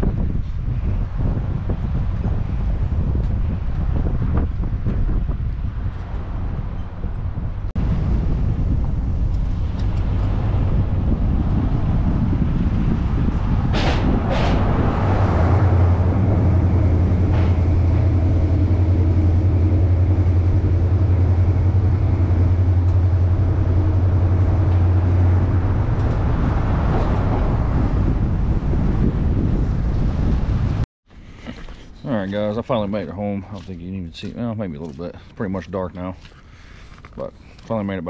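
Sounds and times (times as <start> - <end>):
truck driving: 0.0 - 30.8
strong low hum: 0.0 - 35.3
sharp thumps: 9.2 - 27.4.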